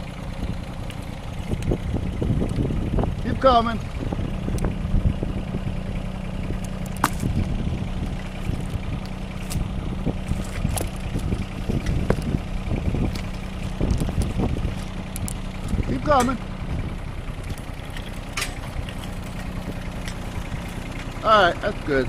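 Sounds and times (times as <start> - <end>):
vehicle engine running slowly: 0.0 - 22.0
sharp clicks and knocks: 13.0 - 16.4.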